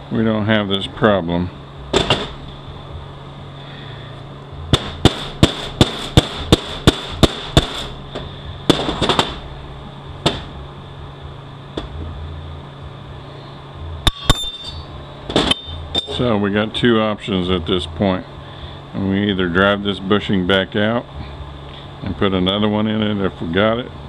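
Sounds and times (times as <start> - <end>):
hammer tapping metal: 14.0 - 16.2.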